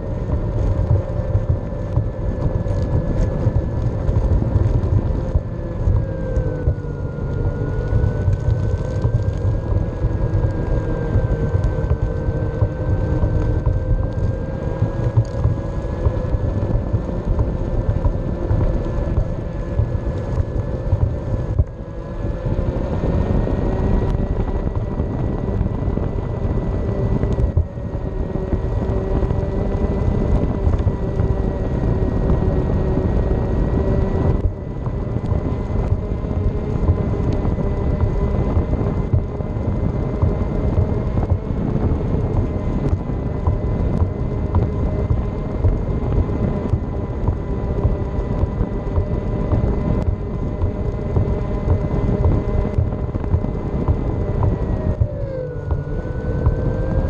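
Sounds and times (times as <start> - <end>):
board wheels rumbling on concrete: 0.0 - 57.0.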